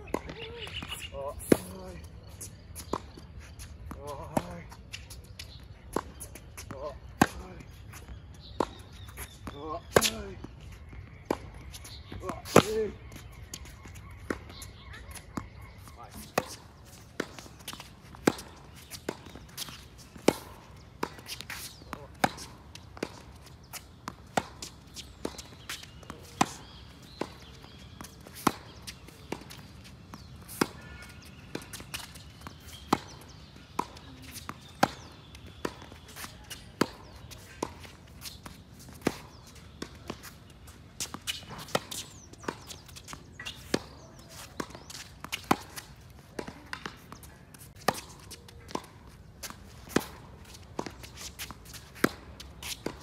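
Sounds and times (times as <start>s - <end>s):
tennis ball bouncing: 0.0s - 1.8s, 5.4s - 53.0s
racket striking tennis ball: 12.2s - 12.8s, 16.1s - 53.0s.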